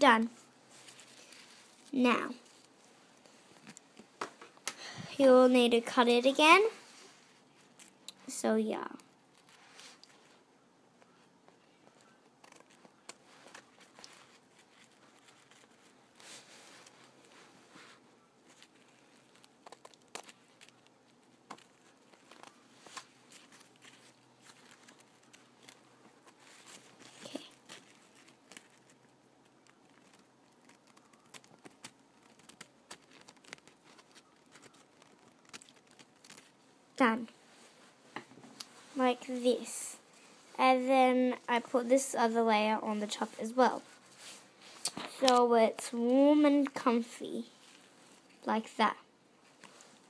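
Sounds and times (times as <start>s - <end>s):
paper rustling: 0.7s - 4.6s, 9.3s - 10.4s, 11.0s - 39.4s, 49.4s - 50.0s.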